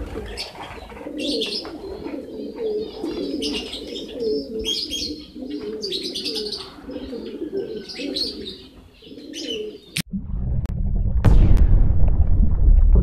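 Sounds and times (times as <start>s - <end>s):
pigeons cooing: 0.0s - 10.0s.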